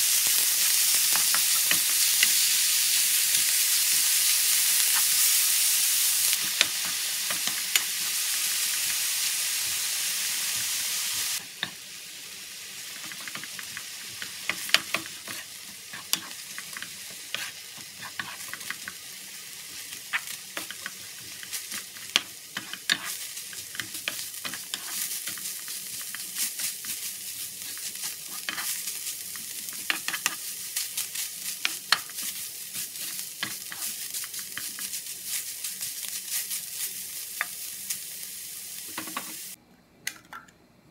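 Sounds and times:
meat sizzling in a frying pan: 0:00.0 - 0:39.6
spatula scraping and tapping pan: 0:13.0 - 0:19.0, 0:20.1 - 0:27.0, 0:27.7 - 0:30.5, 0:31.6 - 0:34.9, 0:38.9 - 0:39.4.

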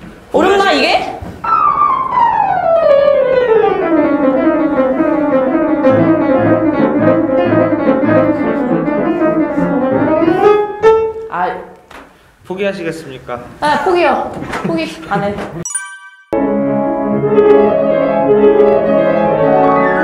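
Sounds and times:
fast piano playing: 0:01.4 - 0:11.6, 0:15.7 - 0:20.0.

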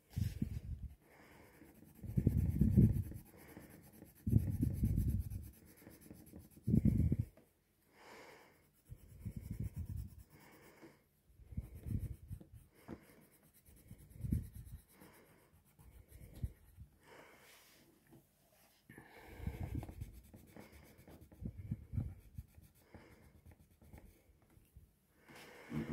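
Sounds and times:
pencil shading on paper: 0:01.2 - 0:07.3, 0:11.4 - 0:17.0, 0:19.4 - 0:24.2.

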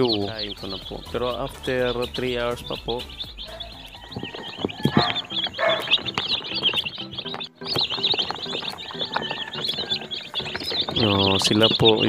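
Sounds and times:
chicks peeping: 0:00.0 - 0:12.0.

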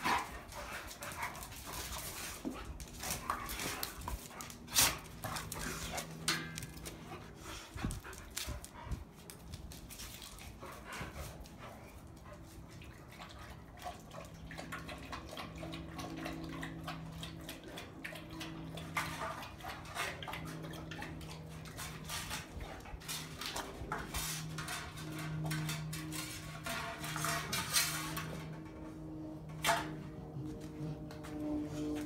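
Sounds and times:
steady low hum: 0:00.0 - 0:32.0
dogs lapping: 0:12.0 - 0:29.5.

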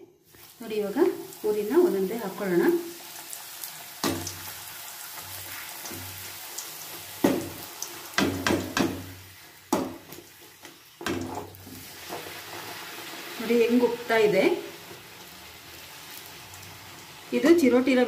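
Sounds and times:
food sizzling in hot oil: 0:00.2 - 0:18.0
metal spoon knocking on pan: 0:07.2 - 0:07.6, 0:08.2 - 0:10.2.

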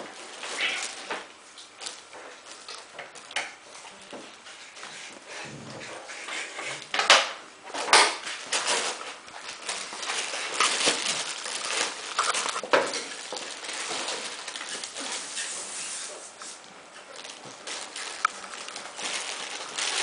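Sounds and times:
rustling: 0:00.0 - 0:20.0
claws clicking on tiled floor: 0:06.8 - 0:15.7.

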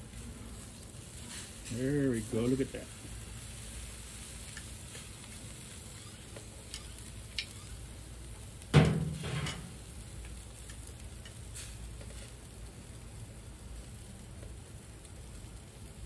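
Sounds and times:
small crackles: 0:00.0 - 0:08.8, 0:09.5 - 0:16.0
meat sizzling on grill: 0:00.0 - 0:16.0
loud short thump: 0:08.8 - 0:09.7.

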